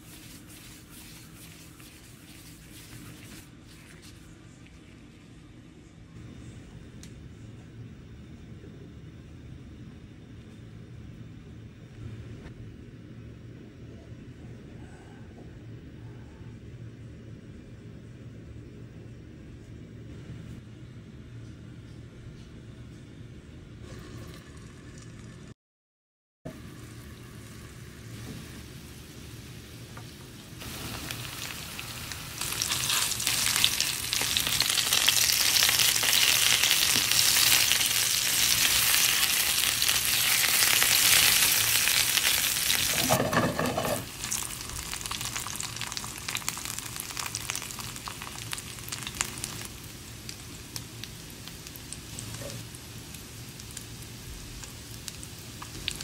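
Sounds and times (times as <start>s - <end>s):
meatballs sizzling in oil: 26.5s - 56.0s
oil crackling: 30.6s - 52.3s.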